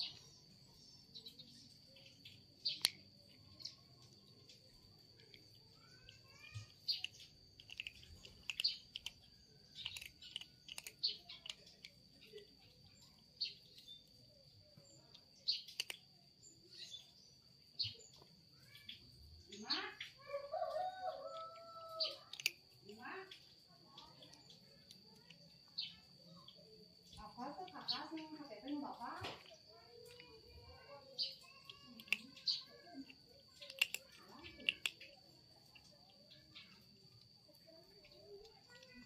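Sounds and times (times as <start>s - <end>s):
kitten crunching dry kibble: 0.0s - 14.2s, 15.2s - 16.2s, 22.1s - 22.8s, 31.6s - 38.1s
birds chirping faintly: 0.0s - 39.0s.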